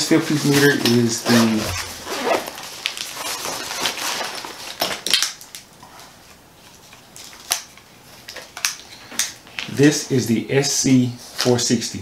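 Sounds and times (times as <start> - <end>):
nylon pouch rustling: 0.4 - 4.8.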